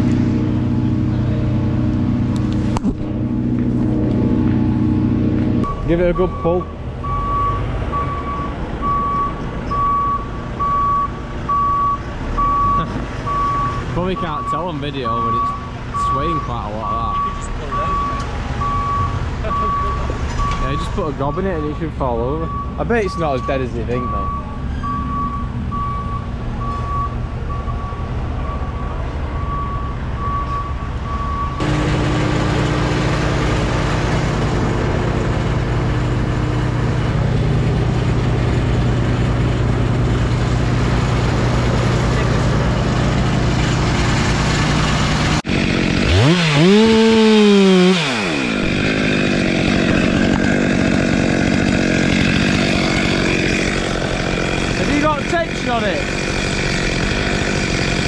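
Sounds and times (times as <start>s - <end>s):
engine idling and revving: 0.0s - 58.0s
reversing alarm beeping: 5.6s - 31.7s.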